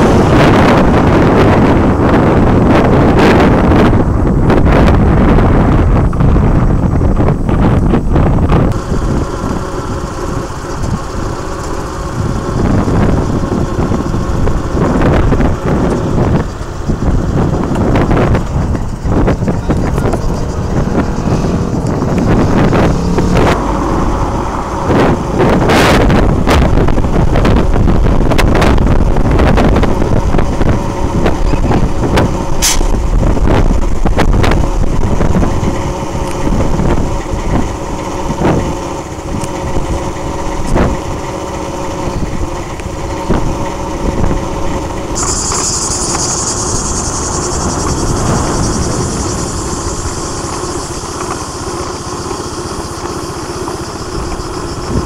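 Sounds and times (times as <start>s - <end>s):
vehicle engines rumbling: 0.0s - 55.0s
steady high hiss: 45.2s - 55.0s.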